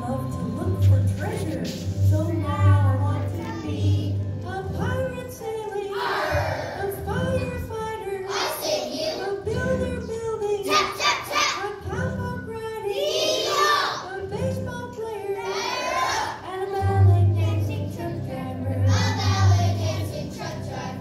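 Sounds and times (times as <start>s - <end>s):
recorded backing music: 0.0s - 21.0s
children singing: 3.2s - 11.9s, 12.8s - 14.3s, 15.2s - 21.0s.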